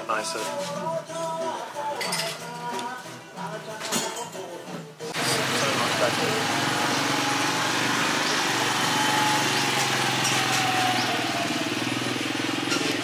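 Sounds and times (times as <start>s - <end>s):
small engine running: 5.2s - 13.0s.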